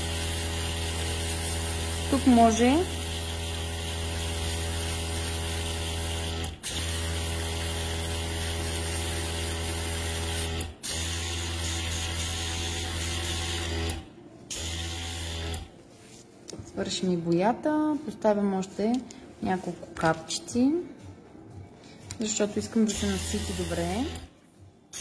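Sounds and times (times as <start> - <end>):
airbrush compressor humming: 0.0 - 15.7, 22.9 - 24.3.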